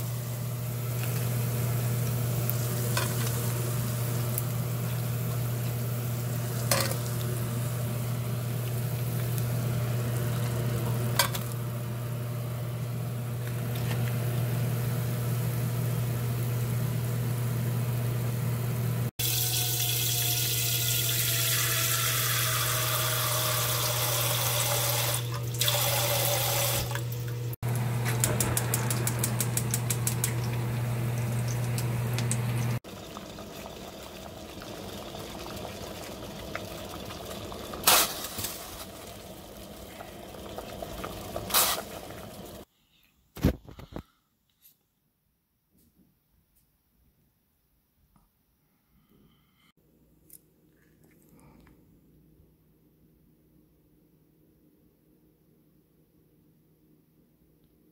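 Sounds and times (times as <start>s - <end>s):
meat sizzling in hot oil: 0.0s - 11.1s, 19.2s - 26.8s.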